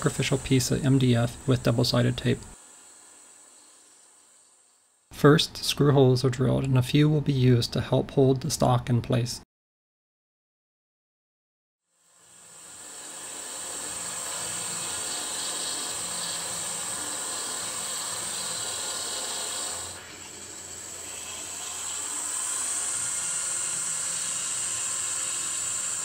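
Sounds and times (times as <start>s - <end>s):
milling spindle motor whine: 0.0s - 5.1s, 12.0s - 26.0s
end mill cutting plywood: 12.5s - 26.0s.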